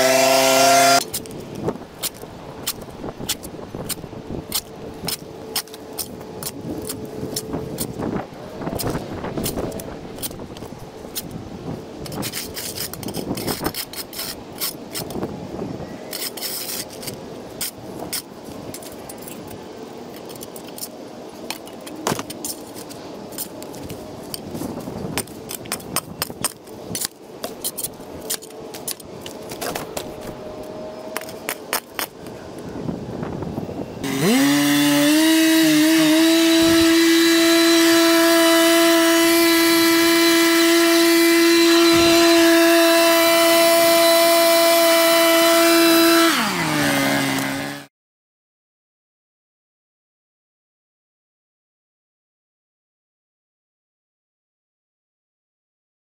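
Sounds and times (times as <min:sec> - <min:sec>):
small gasoline engine revving: 0:00.0 - 0:01.1, 0:34.0 - 0:47.9.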